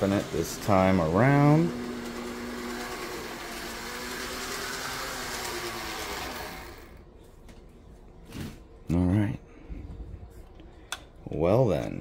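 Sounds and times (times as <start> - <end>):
model train motor humming: 0.0 - 7.0.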